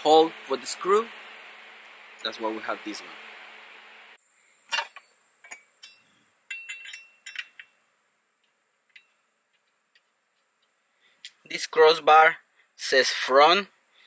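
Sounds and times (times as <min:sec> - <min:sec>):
metal bolts and washers clinking: 0:04.7 - 0:07.8, 0:08.4 - 0:10.8.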